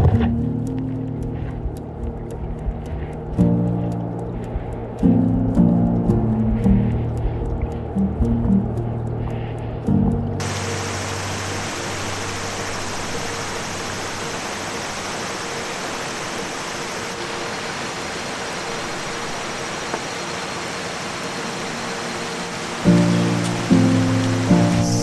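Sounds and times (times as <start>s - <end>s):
river flowing over stones: 10.4s - 25.0s.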